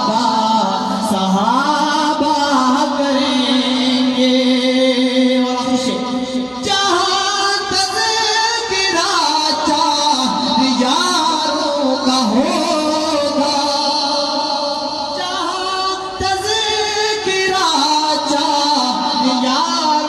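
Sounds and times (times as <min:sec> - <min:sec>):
man singing into a microphone: 0:00.0 - 0:20.0.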